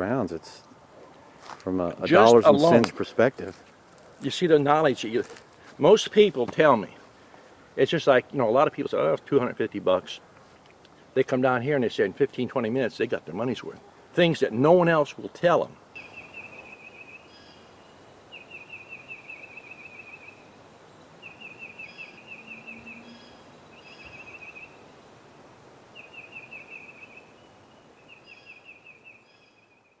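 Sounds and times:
faint outdoor ambience: 0:00.0 - 0:30.0
songbird trilling: 0:15.9 - 0:24.8, 0:25.9 - 0:29.7.

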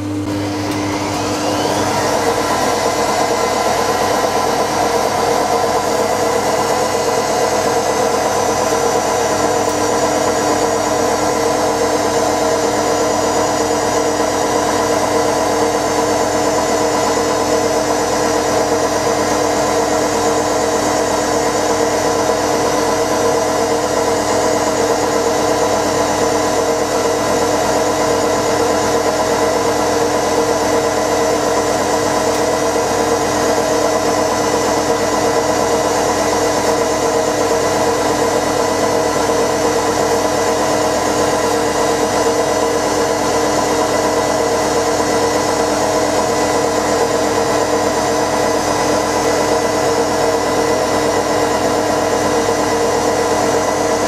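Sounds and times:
washing machine spinning: 0:00.0 - 0:54.0.

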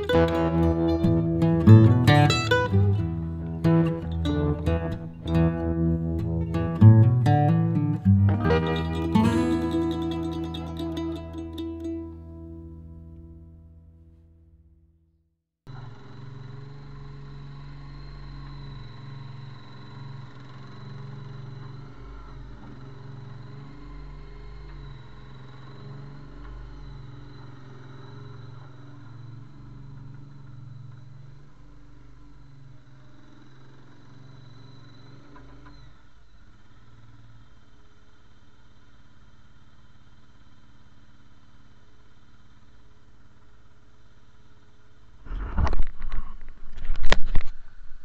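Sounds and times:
thin high whine: 0:00.0 - 0:13.8, 0:15.7 - 0:48.0
loader engine running: 0:00.0 - 0:14.0, 0:15.7 - 0:47.8.

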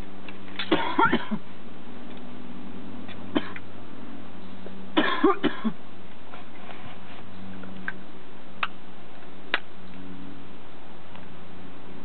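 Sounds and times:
low hum: 0:00.0 - 0:12.0
person coughing: 0:00.7 - 0:01.4, 0:03.4 - 0:03.6, 0:05.0 - 0:05.8.

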